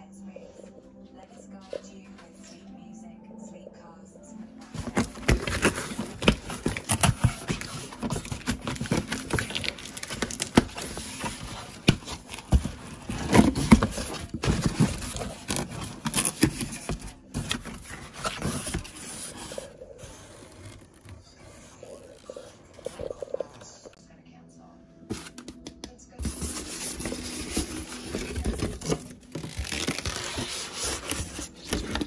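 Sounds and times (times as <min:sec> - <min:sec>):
packaging rustling and crackling: 0:04.7 - 0:23.2, 0:26.2 - 0:32.0.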